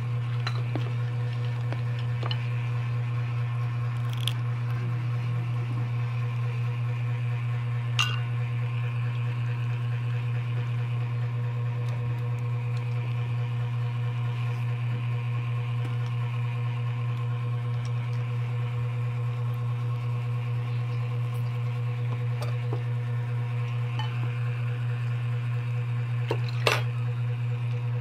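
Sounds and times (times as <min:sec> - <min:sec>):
low background hum: 0:00.0 - 0:28.0
people eating by hand: 0:00.2 - 0:02.6.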